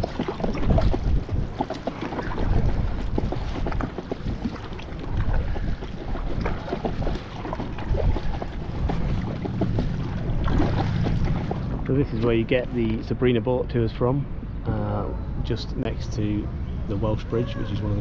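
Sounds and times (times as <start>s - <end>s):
paddle splashing water: 0.0s - 13.0s
wind buffeting microphone: 0.0s - 18.0s.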